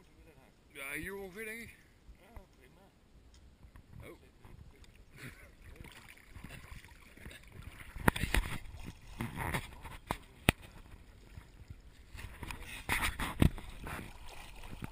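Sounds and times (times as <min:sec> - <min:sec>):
river water splashing and lapping: 0:04.7 - 0:14.9.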